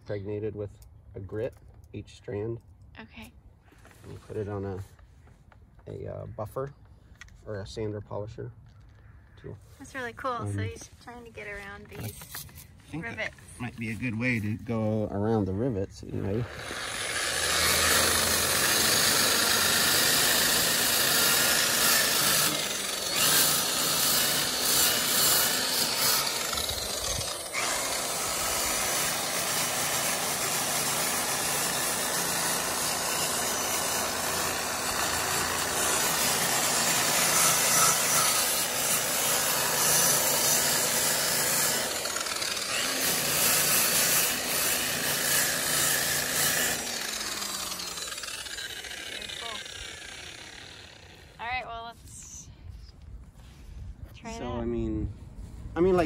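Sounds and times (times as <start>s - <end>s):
angle grinder motor hum: 16.2s - 51.5s.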